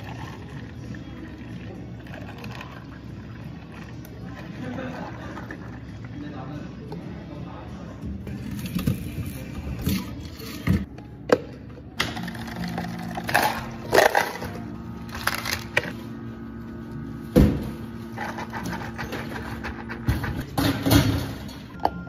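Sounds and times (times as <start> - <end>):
ice clattering into cups: 12.0 - 15.8.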